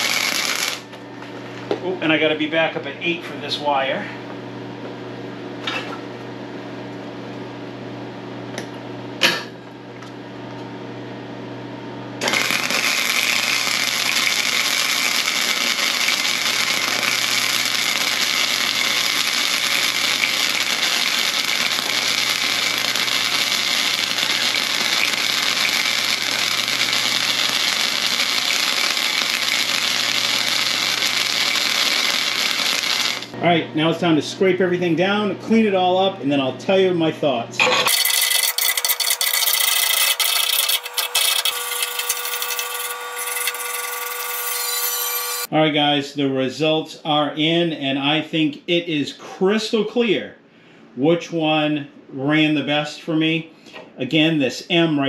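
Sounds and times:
welding arc crackling and sizzling: 0:00.0 - 0:01.0, 0:12.2 - 0:33.4, 0:37.8 - 0:45.5.

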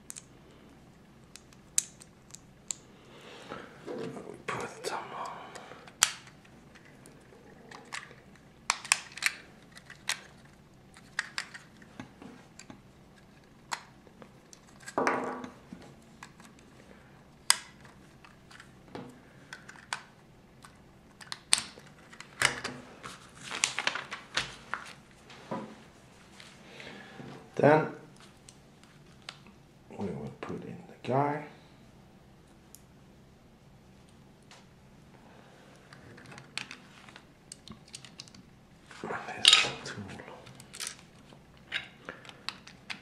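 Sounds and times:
plastic parts clicking: 0:07.7 - 0:11.9, 0:36.2 - 0:38.4
plastic rustling: 0:21.8 - 0:25.2.

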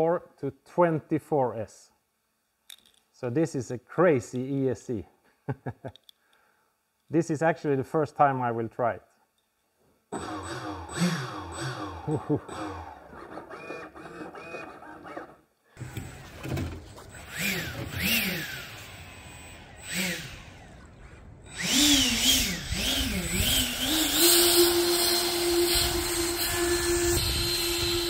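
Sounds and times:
electric ducted fan whine: 0:15.8 - 0:28.0.

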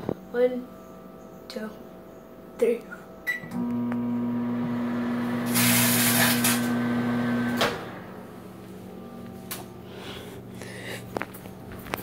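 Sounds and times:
microwave button beep: 0:03.2 - 0:04.1
microwave oven humming: 0:03.2 - 0:10.8.

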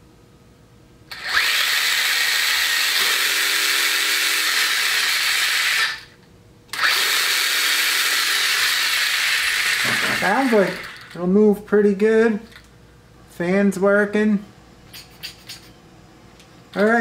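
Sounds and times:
rc truck motor whirring: 0:01.1 - 0:11.2.

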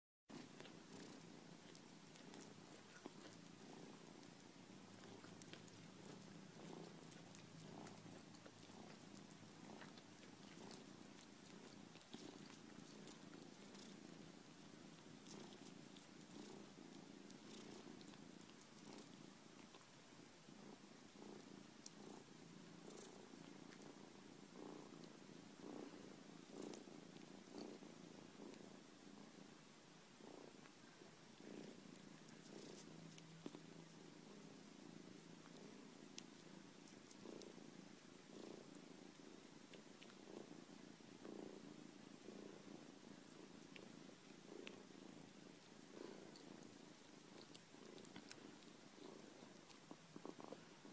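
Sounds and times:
cat chewing corn: 0:00.3 - 0:28.7, 0:30.2 - 0:50.9
cat purring: 0:00.3 - 0:50.9.

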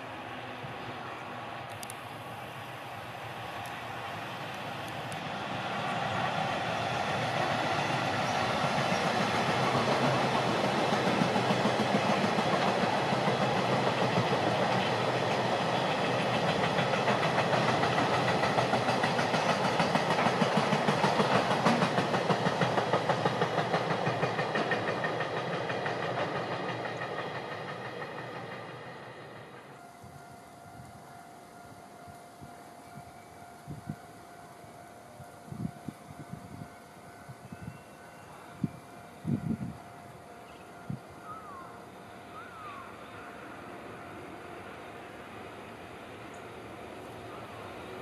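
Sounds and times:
freight train rumble: 0:00.0 - 0:48.0
wheels clacking over rail joints: 0:06.2 - 0:29.5.

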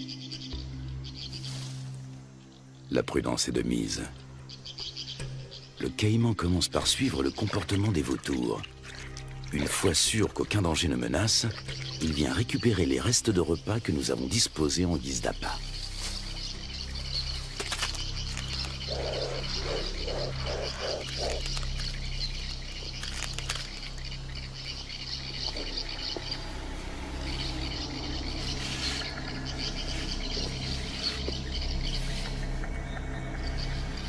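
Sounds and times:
chorus of calling animals: 0:18.3 - 0:23.8, 0:24.6 - 0:34.0.

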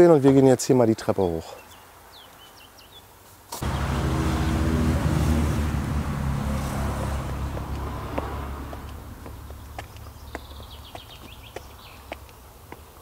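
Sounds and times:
vehicle engine starting: 0:03.6 - 0:10.3
bird chirps: 0:09.3 - 0:12.2.

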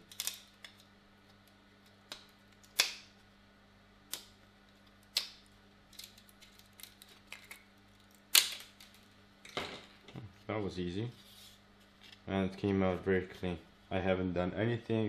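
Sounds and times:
small crackles: 0:04.1 - 0:09.1.

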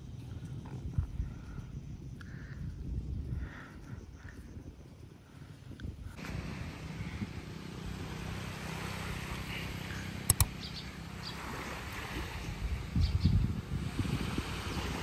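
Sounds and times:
water at the shore: 0:00.0 - 0:15.0
wind at the shore: 0:00.0 - 0:15.0
sharp clicks: 0:10.3 - 0:10.6.

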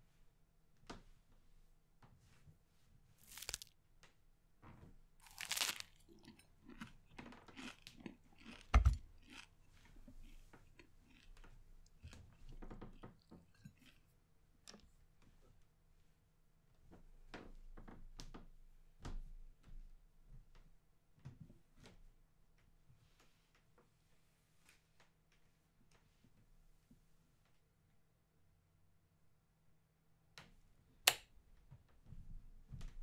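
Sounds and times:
crunchy bites and chewing: 0:03.2 - 0:03.8, 0:05.2 - 0:12.2.

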